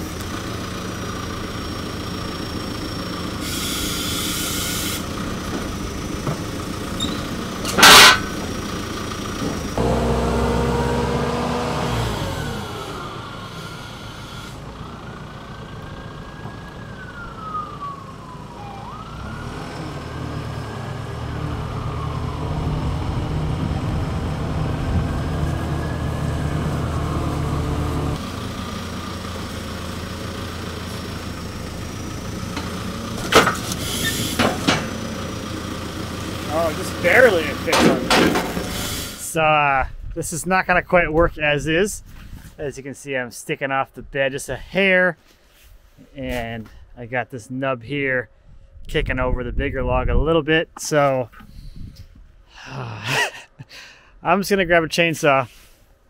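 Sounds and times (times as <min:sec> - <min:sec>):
engine running: 0:00.0 - 0:39.4
distant wailing siren: 0:01.0 - 0:37.8.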